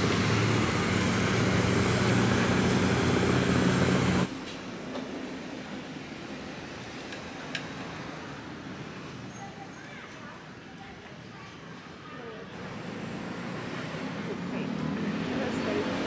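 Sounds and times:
boat engine droning: 0.0s - 4.3s
street ambience: 0.0s - 16.0s.

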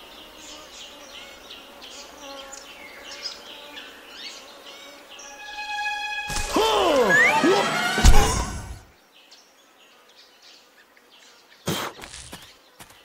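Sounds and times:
birds chirping: 0.0s - 11.7s
soft background music: 5.2s - 8.8s
steady held note: 5.5s - 8.8s
swooping whistle sound effects: 6.3s - 8.8s.

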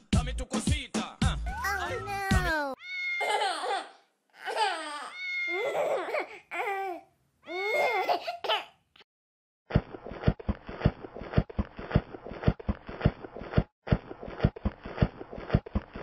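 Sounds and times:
baby crying: 1.5s - 8.8s.

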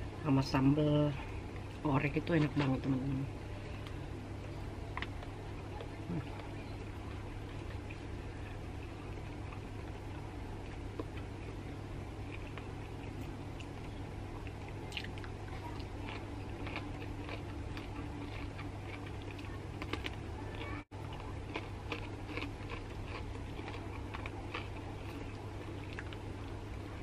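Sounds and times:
chewing with wet mouth clicks: 4.9s - 11.5s, 12.2s - 26.6s.

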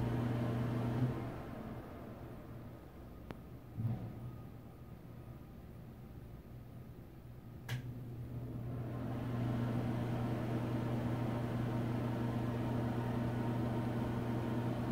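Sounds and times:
exhaust fan humming: 0.0s - 4.2s, 7.5s - 14.9s.

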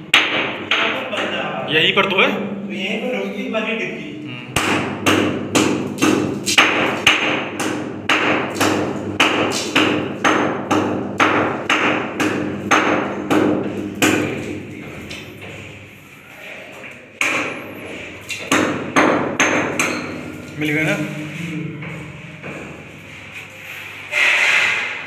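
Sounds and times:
hammer striking concrete: 0.1s - 1.4s, 4.6s - 14.7s, 18.4s - 20.4s.

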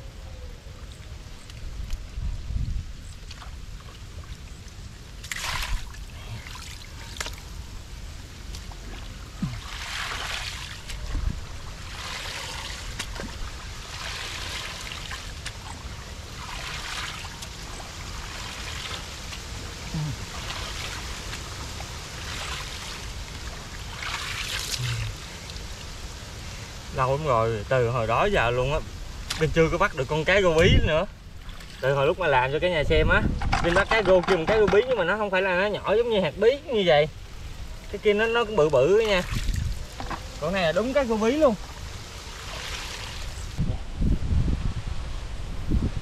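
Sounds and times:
muddy water splashing: 3.2s - 26.2s, 29.2s - 30.4s, 31.3s - 32.1s, 37.7s - 43.6s.

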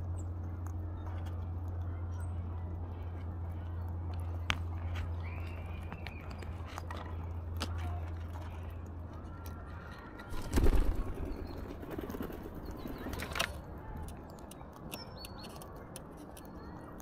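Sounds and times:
bird wings flapping: 10.3s - 13.6s.

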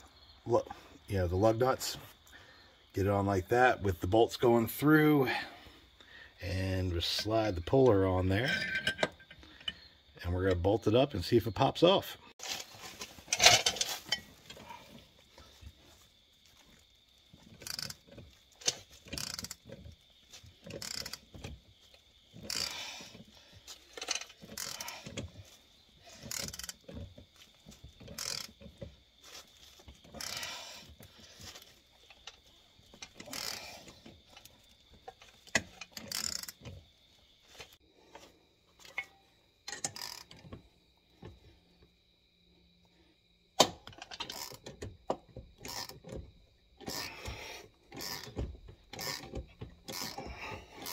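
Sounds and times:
ratchet wrench clicking: 17.6s - 18.0s, 18.6s - 19.6s, 20.6s - 21.2s, 22.4s - 22.9s, 24.0s - 25.2s, 26.2s - 26.8s, 28.1s - 28.5s, 33.1s - 33.8s, 35.5s - 36.6s, 39.7s - 40.4s, 44.2s - 44.6s, 45.7s - 46.0s, 46.8s - 50.9s.

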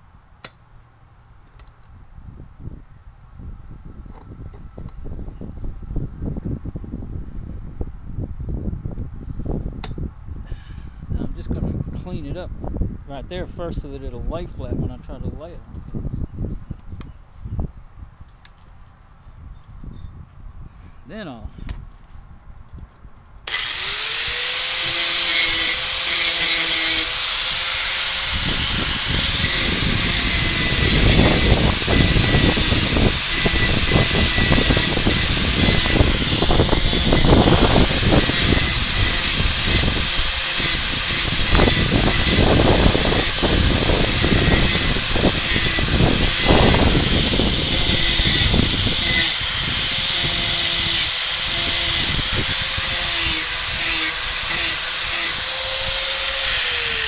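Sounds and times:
angle grinder motor whine: 23.5s - 57.0s
grinding steel bar: 23.5s - 57.0s.

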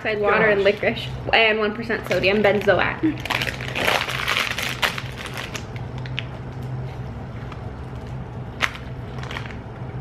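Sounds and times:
low steady hum: 0.0s - 10.0s
plastic bag crinkling: 2.0s - 6.4s, 8.6s - 9.7s
sharp plastic crackle: 2.0s - 6.8s, 7.9s - 9.7s.

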